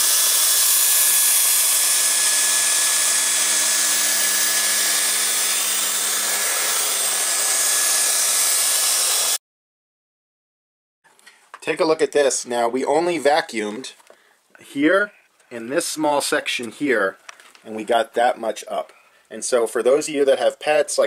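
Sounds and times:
vacuum cleaner running: 0.0 - 9.4.

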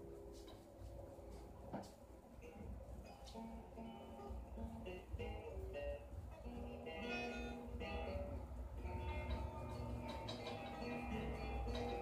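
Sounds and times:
background music with low bass: 0.0 - 12.0.

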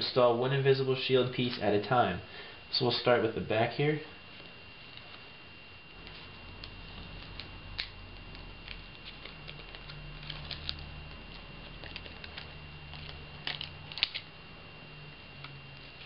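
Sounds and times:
plastic film clicking and crackling: 6.6 - 14.3.

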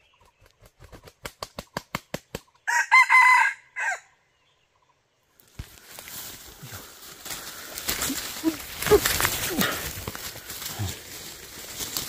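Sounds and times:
rooster flapping wings: 0.2 - 2.5, 7.4 - 12.0
rooster crowing: 2.7 - 4.1.

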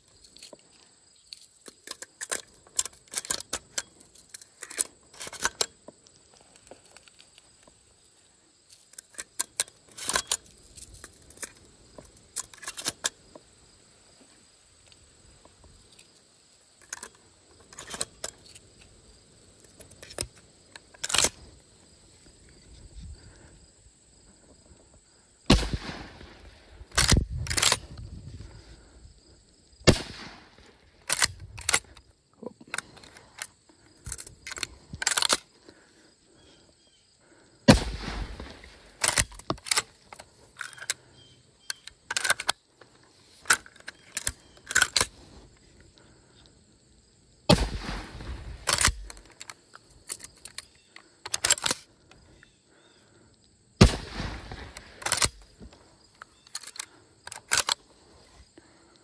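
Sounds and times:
shotgun lever clicking and clacking: 1.6 - 5.8, 8.9 - 13.2, 16.8 - 18.7, 19.7 - 21.4, 25.5 - 28.0, 29.9 - 32.0, 32.7 - 35.5, 37.7 - 42.6, 43.4 - 45.1, 47.5 - 51.9, 53.8 - 57.8
shotgun shots booming: 25.5 - 27.3, 29.8 - 30.6, 37.7 - 39.0, 47.5 - 49.1, 53.8 - 55.1.

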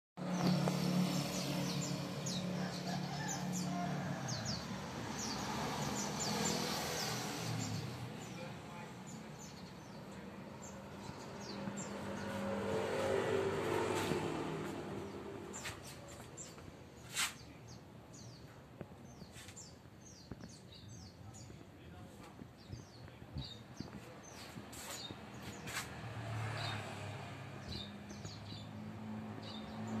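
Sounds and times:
small birds chirping: 0.2 - 13.2, 13.9 - 26.9, 27.5 - 30.0
engine hum: 0.2 - 17.4.

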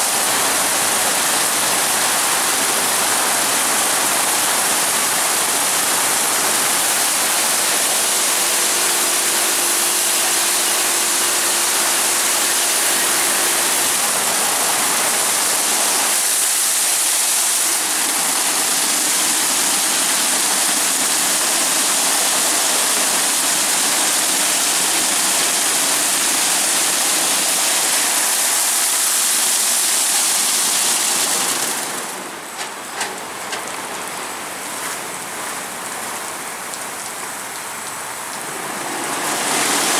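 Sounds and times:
car wash spray and brushes: 36.8 - 39.9.

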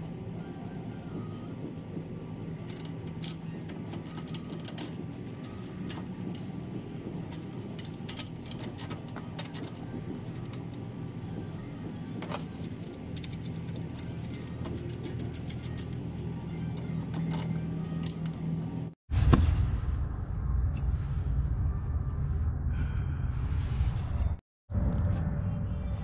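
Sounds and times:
steady low hum: 0.0 - 26.0
metal parts clinking and rattling: 2.6 - 10.9, 12.2 - 19.0.

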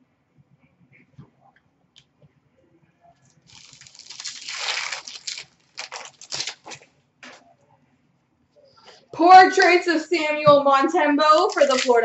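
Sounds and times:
wrapper crinkling: 3.3 - 6.9, 11.3 - 12.0
card pack wrapper tearing: 3.5 - 6.9, 11.4 - 12.0.

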